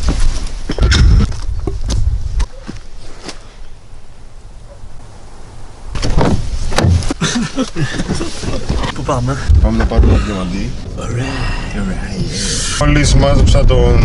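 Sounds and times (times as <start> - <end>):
car door opening: 6.0 - 7.2
rustling in car seat: 6.0 - 9.4.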